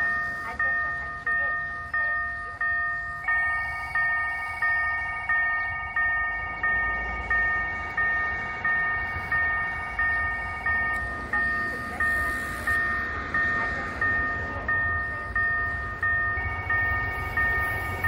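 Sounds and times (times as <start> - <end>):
level crossing warning bell ringing: 0.0 - 18.0.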